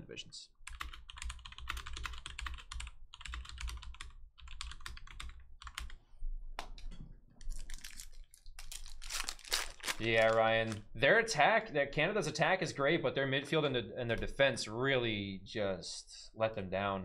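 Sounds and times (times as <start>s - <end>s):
typing on a keyboard: 0.7s - 6.0s.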